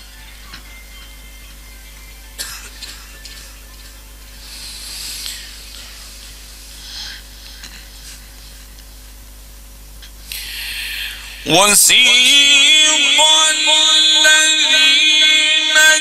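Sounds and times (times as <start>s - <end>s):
electrical hum: 0.0s - 16.0s
soft breathy hisses: 4.4s - 7.3s.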